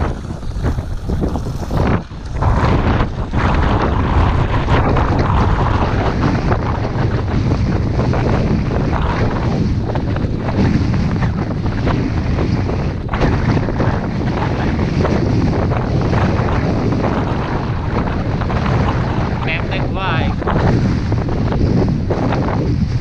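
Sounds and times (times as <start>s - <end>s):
skis sliding on snow: 0.0s - 4.6s
wind buffeting microphone: 0.0s - 23.0s.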